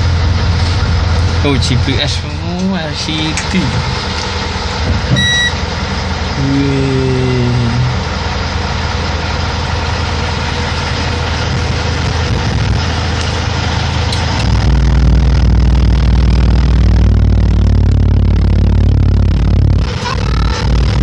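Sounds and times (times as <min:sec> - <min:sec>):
diesel truck engine running: 0:00.0 - 0:21.0
short high electronic beep: 0:05.2 - 0:05.6.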